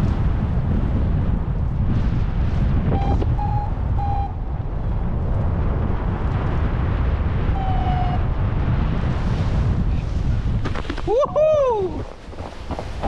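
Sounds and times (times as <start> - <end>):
wind buffeting microphone: 0.0 - 13.0
variometer beeps: 2.9 - 4.4.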